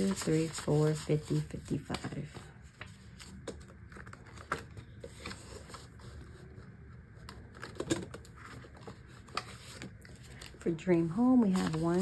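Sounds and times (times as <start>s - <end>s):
banknotes rustling: 0.0s - 12.0s.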